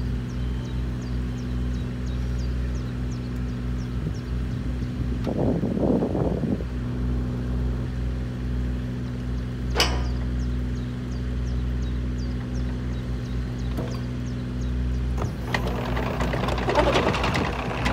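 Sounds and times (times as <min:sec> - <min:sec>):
excavator diesel engine running: 0:06.7 - 0:17.9
sharp metal clunk: 0:09.7 - 0:10.4
tracks clattering: 0:15.0 - 0:17.9.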